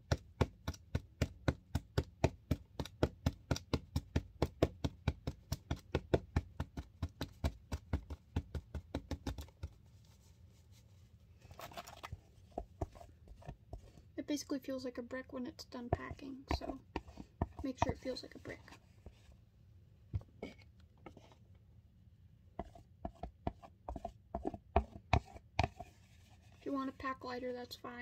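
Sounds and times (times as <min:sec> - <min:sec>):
spatula tapping in plastic container: 0:00.0 - 0:09.8, 0:15.7 - 0:18.6, 0:22.6 - 0:25.9.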